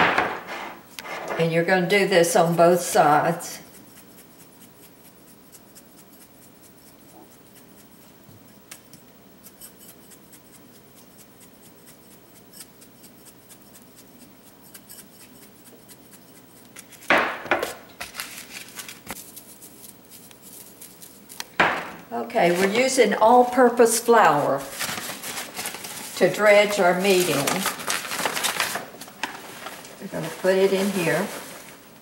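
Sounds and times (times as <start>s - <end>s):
rustles and knocks: 0.0s - 1.5s, 16.8s - 19.2s, 21.5s - 23.0s, 24.6s - 31.9s
seasoning shaker rattling: 1.7s - 31.6s.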